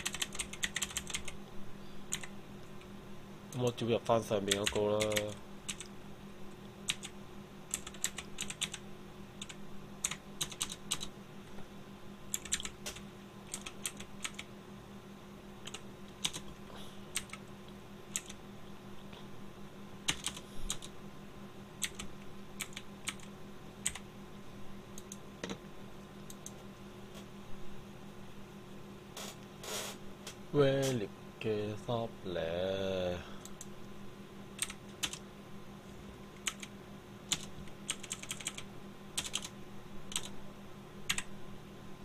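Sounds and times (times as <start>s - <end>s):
keyboard typing: 0.0s - 1.4s, 2.1s - 2.3s, 4.4s - 5.9s, 6.9s - 8.8s, 9.4s - 11.1s, 12.3s - 14.5s, 15.6s - 17.5s, 18.1s - 18.4s, 20.1s - 20.9s, 21.8s - 24.0s, 26.3s - 26.6s, 34.6s - 35.2s, 36.4s - 36.7s, 37.3s - 39.5s, 40.1s - 40.3s, 41.1s - 41.3s
faint hum: 0.0s - 42.0s.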